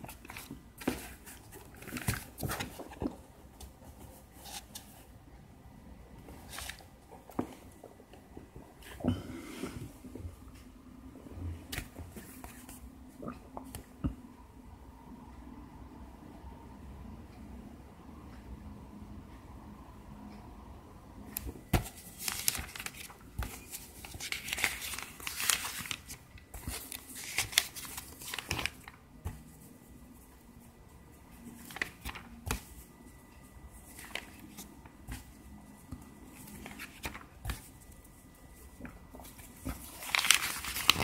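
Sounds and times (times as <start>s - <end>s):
paper pages rustling: 0.0s - 5.1s, 6.2s - 7.8s, 21.4s - 41.0s.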